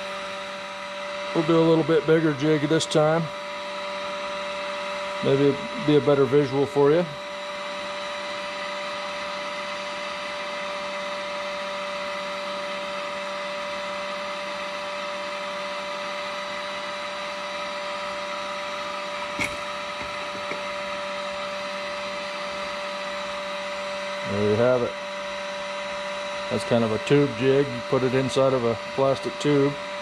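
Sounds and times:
small electric motor humming: 0.0 - 30.0.

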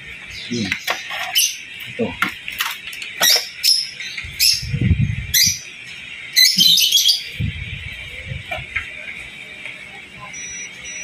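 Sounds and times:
small birds chirping: 0.0 - 2.1, 3.0 - 8.2.

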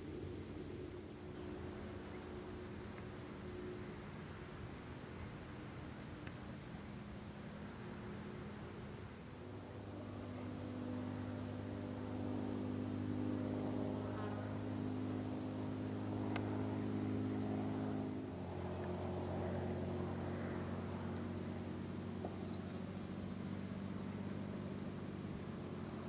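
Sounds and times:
engine humming: 0.0 - 26.0.

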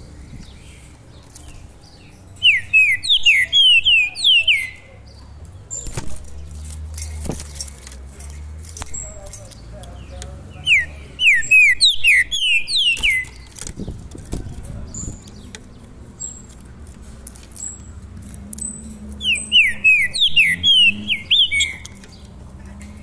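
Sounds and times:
songbird whistled singing: 0.2 - 6.0, 10.5 - 13.5, 18.6 - 22.3
faint high bird chips: 0.4 - 9.7, 10.6 - 13.9, 14.9 - 22.3.

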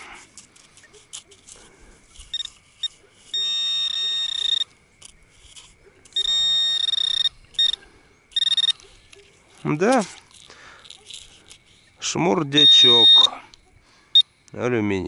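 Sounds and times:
metal detector beeps: 2.2 - 4.7, 5.6 - 9.2, 12.4 - 13.4.

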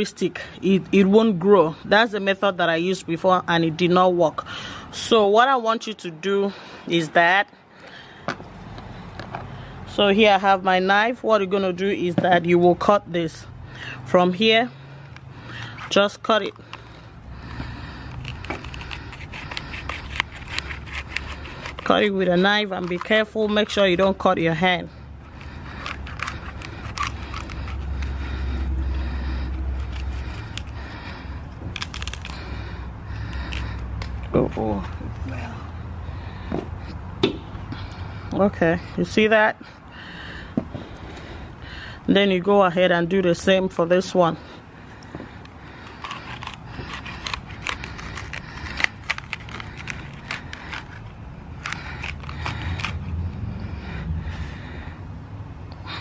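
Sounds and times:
knife crunching through celery: 14.9 - 24.2, 25.2 - 33.9, 45.4 - 53.2.

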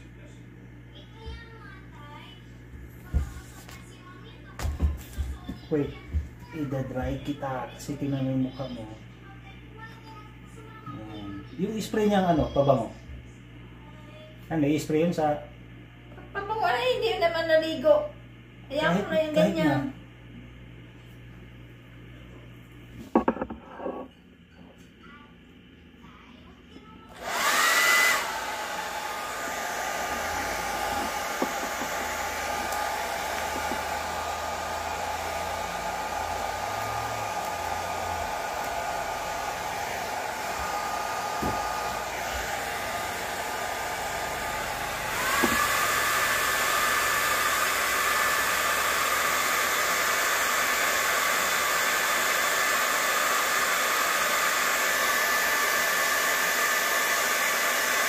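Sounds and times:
hair dryer blowing: 3.0 - 3.9, 4.5 - 9.0, 18.7 - 19.9, 27.1 - 58.0.

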